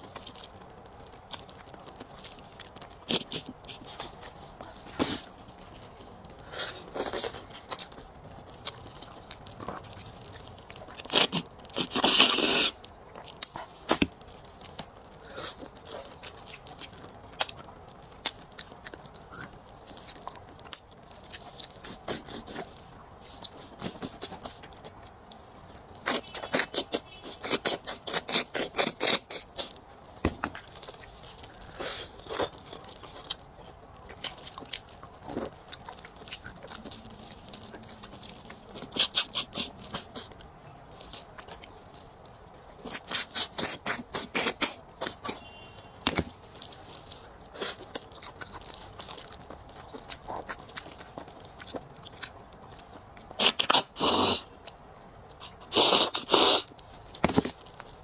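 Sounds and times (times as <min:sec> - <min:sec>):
mouth sucking and slurping: 0:11.1 - 0:12.8, 0:26.0 - 0:29.8, 0:53.4 - 0:54.5, 0:55.4 - 0:56.7.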